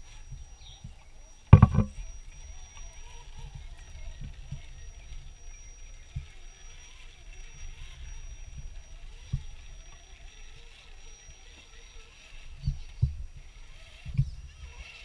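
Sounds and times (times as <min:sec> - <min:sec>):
faint high whine: 0:00.0 - 0:15.0
toy truck motor rumble: 0:00.0 - 0:15.0
sharp knocks: 0:01.6 - 0:01.9.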